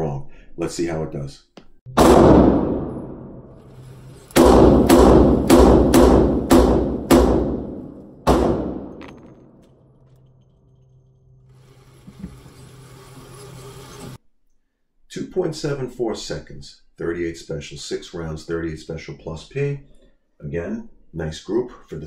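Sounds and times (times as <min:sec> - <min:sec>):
revolver shots echoing indoors: 0:01.9 - 0:09.9.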